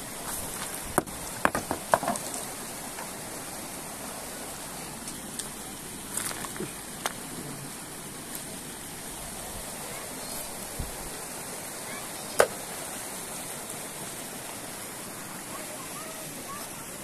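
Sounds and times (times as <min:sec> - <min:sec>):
river water running over stones: 0:00.0 - 0:17.0
rocks knocking underfoot: 0:00.2 - 0:02.6, 0:06.1 - 0:07.2.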